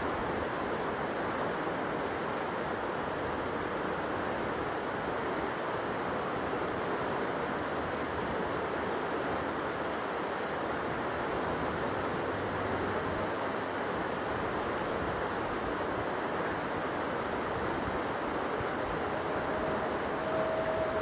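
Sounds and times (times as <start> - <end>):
steady rushing noise: 9.5 - 21.0.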